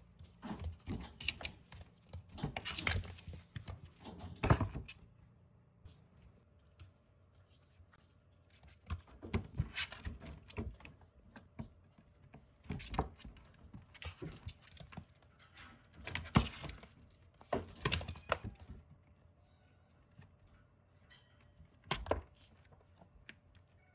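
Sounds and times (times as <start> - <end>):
kittens' paws pattering on cage floor: 5.8 - 19.1.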